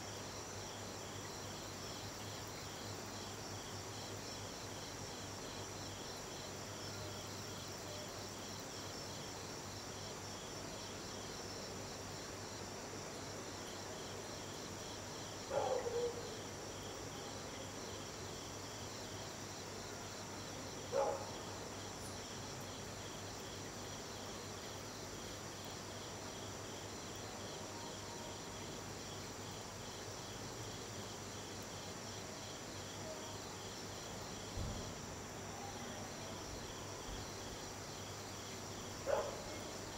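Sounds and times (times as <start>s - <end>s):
crickets chirring: 0.0s - 12.6s.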